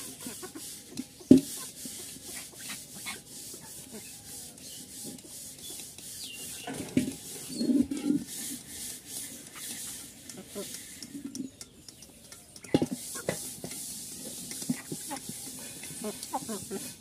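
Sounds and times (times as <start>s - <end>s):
chickens pecking at grain: 0.0s - 17.0s.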